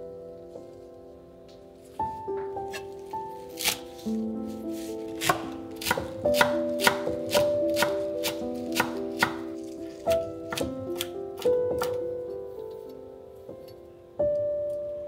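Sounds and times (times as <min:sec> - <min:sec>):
background music sustained notes: 0:00.0 - 0:15.0
knife chopping on wooden board: 0:03.6 - 0:03.8, 0:04.8 - 0:09.5, 0:10.1 - 0:12.0.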